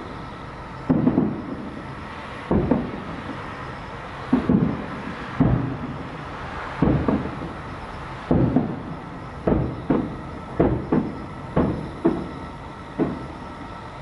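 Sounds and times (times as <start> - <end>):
distant firework booms: 0.9 - 3.4, 4.3 - 6.2, 6.8 - 13.4.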